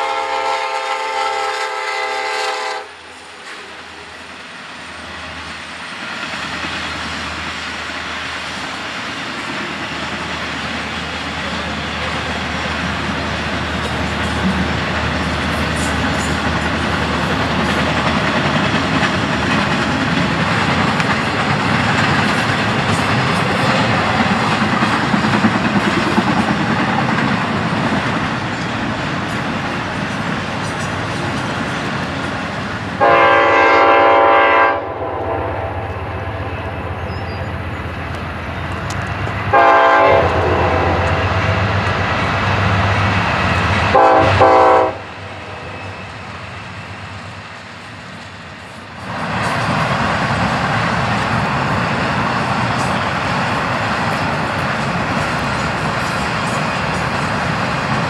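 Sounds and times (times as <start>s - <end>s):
locomotive air horn: 0.0s - 4.0s, 33.0s - 36.8s, 39.5s - 41.4s, 43.9s - 45.8s
freight train rumbling and rattling: 0.0s - 58.0s.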